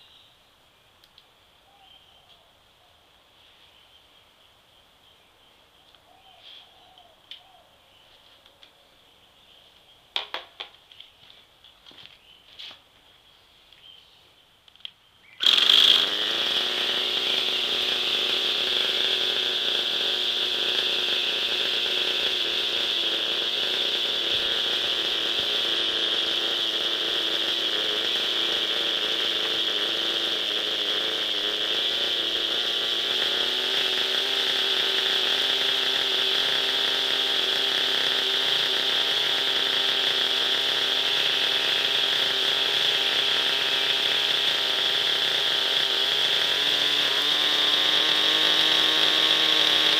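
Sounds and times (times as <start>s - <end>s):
high rotor whine: 15.4s - 49.9s
model helicopter engine running: 15.4s - 49.9s.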